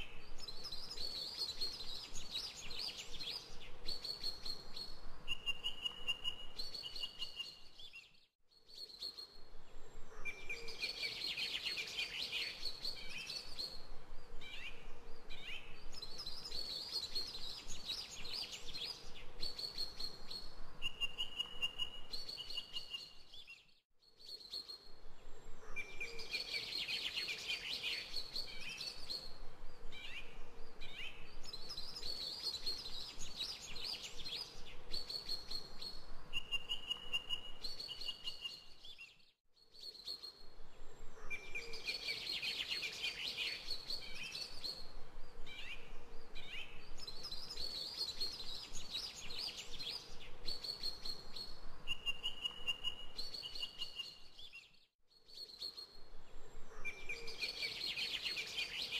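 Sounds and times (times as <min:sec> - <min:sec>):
birds chirping and singing: 0:55.3 - 0:58.9.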